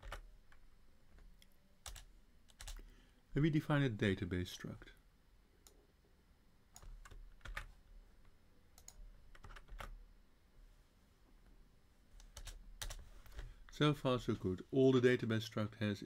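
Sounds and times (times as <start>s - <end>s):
computer keyboard typing: 0.0s - 0.6s, 1.8s - 2.8s, 6.7s - 7.7s, 8.8s - 10.0s, 12.2s - 13.0s.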